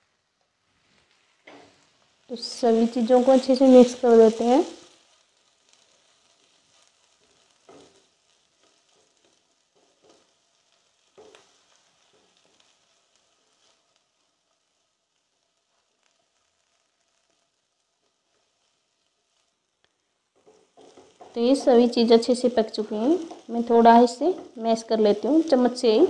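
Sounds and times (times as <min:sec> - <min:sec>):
food sizzling in a pan: 0:00.0 - 0:26.0
spatula scraping a pan: 0:05.7 - 0:12.8, 0:20.4 - 0:25.8.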